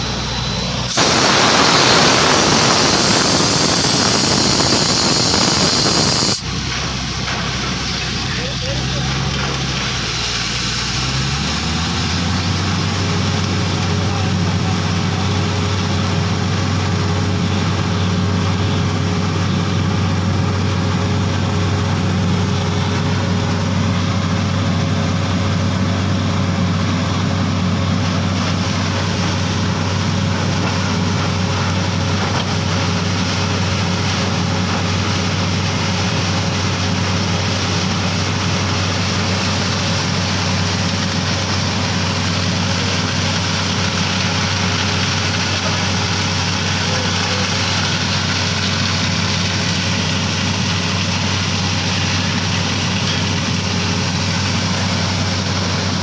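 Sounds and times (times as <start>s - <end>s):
drilling rig engine drone: 0.0s - 56.0s
air and water hissing out: 0.8s - 6.7s.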